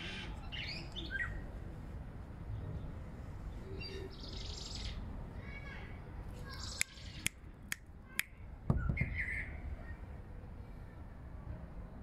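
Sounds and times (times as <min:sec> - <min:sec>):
birds chirping: 0:06.4 - 0:07.4.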